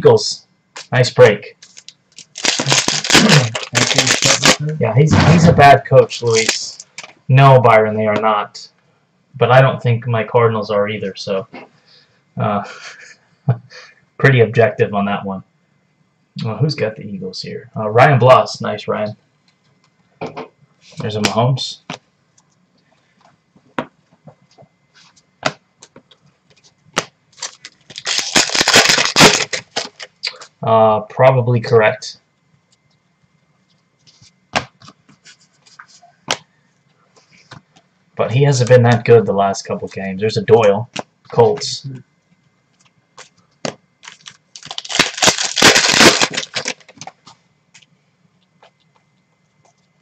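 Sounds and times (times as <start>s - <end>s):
trading cards clicking and slapping: 1.6s - 4.6s, 36.2s - 36.5s, 42.8s - 47.9s.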